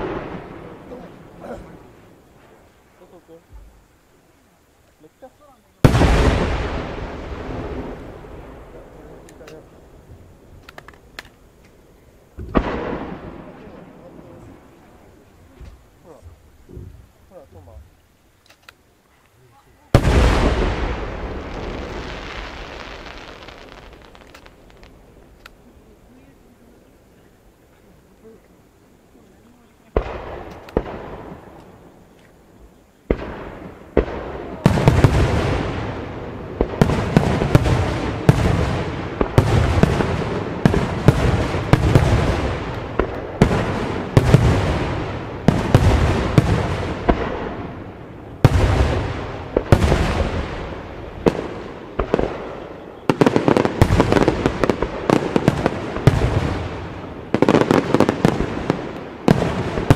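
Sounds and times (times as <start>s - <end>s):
firework shells bursting: 10.5s - 13.9s, 20.0s - 25.7s, 29.9s - 32.4s.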